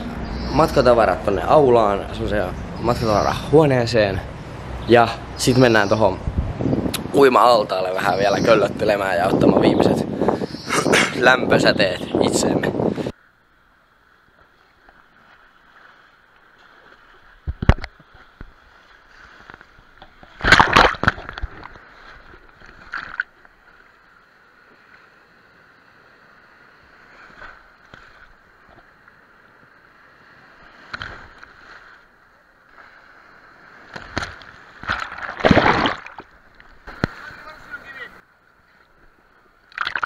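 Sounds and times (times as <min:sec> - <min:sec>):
waves splashing over camera: 0:00.0 - 0:13.2, 0:15.0 - 0:38.2, 0:39.7 - 0:40.0
muffled wash of waves: 0:00.0 - 0:40.0.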